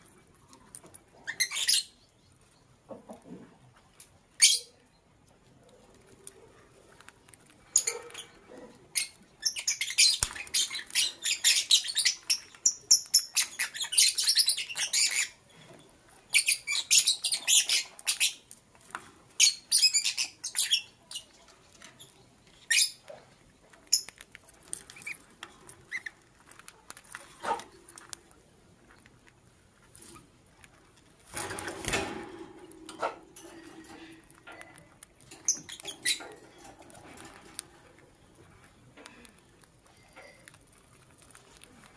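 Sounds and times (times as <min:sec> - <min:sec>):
lovebirds chirping: 0:01.2 - 0:03.0, 0:07.4 - 0:18.6, 0:19.3 - 0:28.1, 0:33.5 - 0:41.8.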